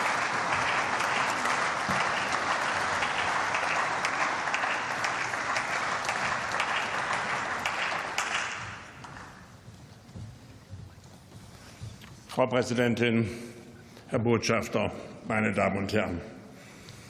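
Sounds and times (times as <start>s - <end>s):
people applauding: 0.0s - 9.6s.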